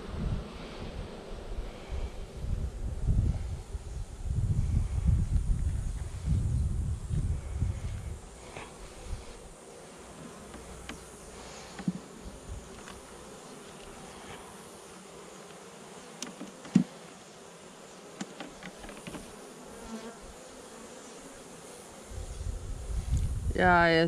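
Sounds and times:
honeybees buzzing: 0.0 - 24.0
light knocks of hive frames: 10.1 - 14.6, 15.4 - 17.2, 18.1 - 19.4.

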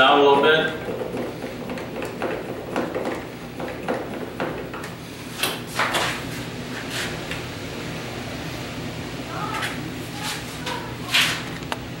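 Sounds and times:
door stop knocking and rattling: 0.8 - 4.9.

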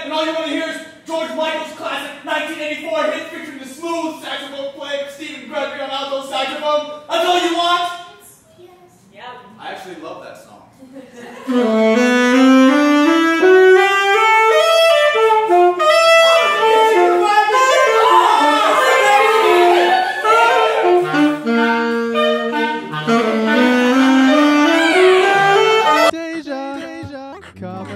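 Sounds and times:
saxophone melody: 11.4 - 27.9.

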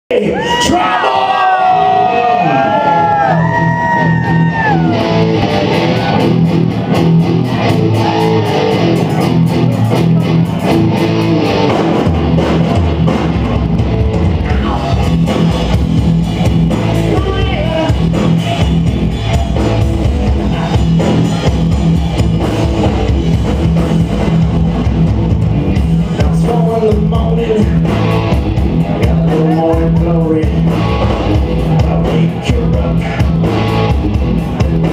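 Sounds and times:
electric guitars: 0.2 - 34.9
drum kit: 2.8 - 34.9.

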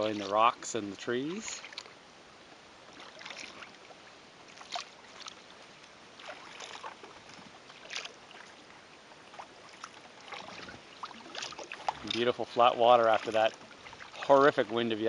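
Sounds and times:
faint steady hiss: 0.0 - 3.2
paddle splashing in water: 0.0 - 15.0.

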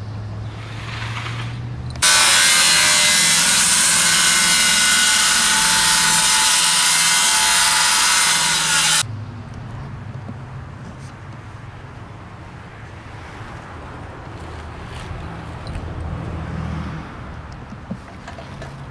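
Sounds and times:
circular saw cutting wood: 0.5 - 9.1.

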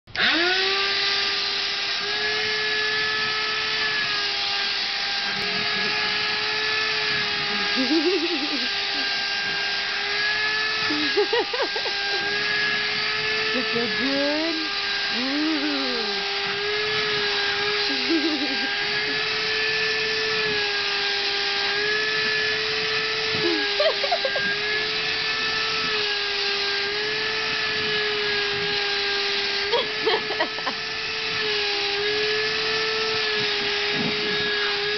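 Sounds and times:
handheld vacuum whining: 0.1 - 34.9.

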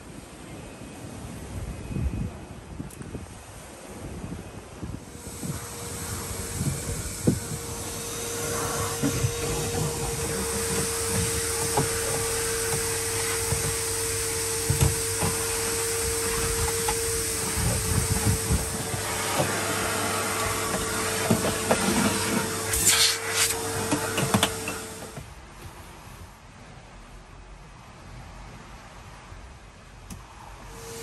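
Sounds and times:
vacuum cleaner running: 5.0 - 25.3, 30.6 - 31.0
nozzle knocking and scraping: 5.1 - 25.3.

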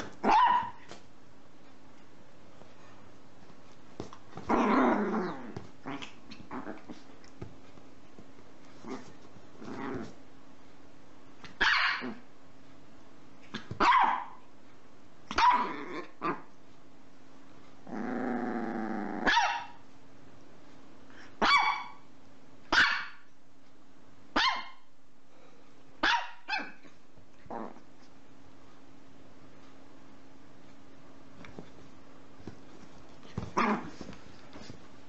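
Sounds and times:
small dog yapping: 0.0 - 1.0, 11.5 - 12.2, 13.5 - 14.4, 15.3 - 16.4, 19.2 - 19.8, 21.4 - 22.0, 22.7 - 23.2, 24.4 - 24.8, 26.0 - 26.9
dog growling: 4.4 - 7.1, 8.8 - 10.2, 15.6 - 16.4, 17.8 - 19.3, 27.5 - 27.8, 33.4 - 34.0.

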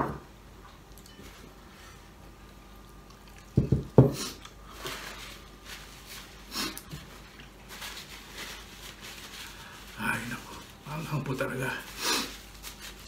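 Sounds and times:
paper towel rustling: 4.6 - 13.0.

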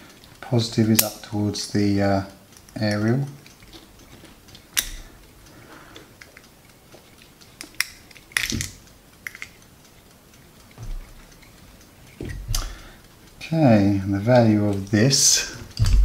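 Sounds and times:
circuit board clicking and rattling: 6.1 - 10.0
soft thump: 15.8 - 16.0.

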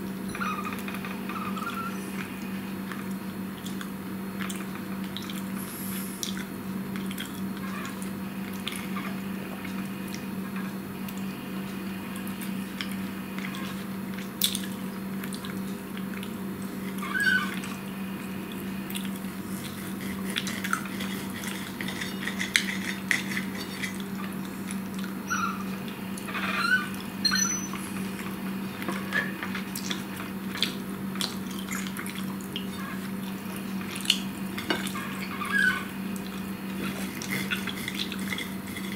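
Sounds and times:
cutlery scraping on a plate: 19.6 - 24.0.

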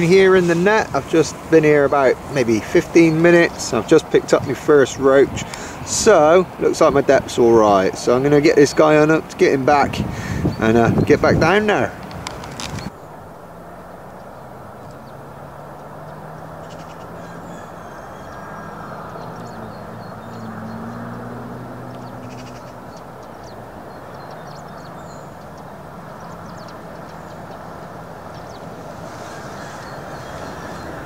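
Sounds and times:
distant engine drone: 0.0 - 31.0
steady outdoor rush: 0.0 - 31.0
faint bird calls: 16.0 - 21.3, 21.9 - 31.0.

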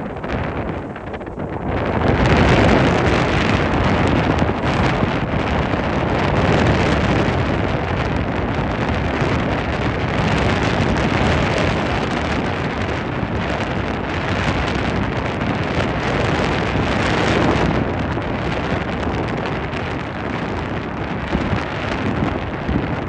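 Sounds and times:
water noise: 0.0 - 13.7
boat motor: 0.0 - 17.1
wind buffeting microphone: 0.0 - 23.0.

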